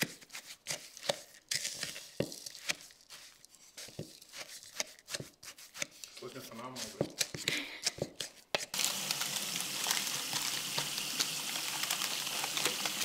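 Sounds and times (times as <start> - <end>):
spatula scraping a bowl: 0.0 - 8.8.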